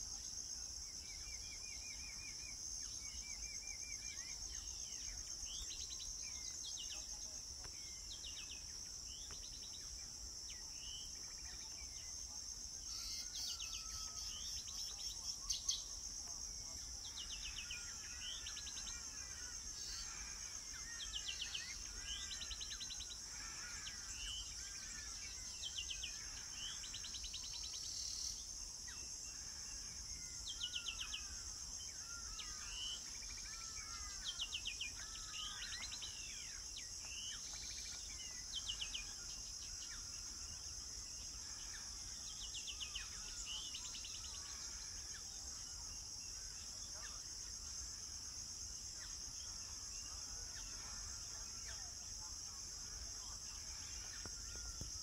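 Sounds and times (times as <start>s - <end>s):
songbirds singing: 0.0s - 55.0s.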